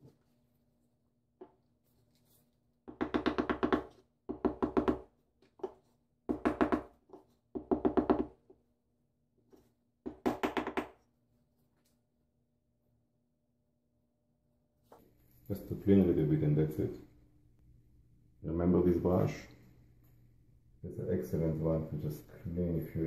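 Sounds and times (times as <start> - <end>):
hammer tapping on wooden block: 2.9 - 6.9, 7.6 - 8.4, 10.0 - 11.0.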